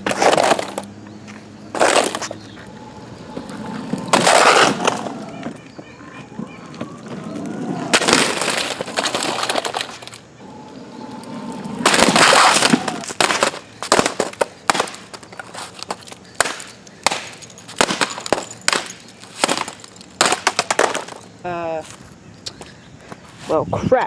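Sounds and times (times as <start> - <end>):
skateboard wheels rumbling on pavement: 0.0 - 22.0
loud crunch of laptop: 1.8 - 2.4, 3.9 - 5.3, 7.8 - 10.2, 11.7 - 21.2.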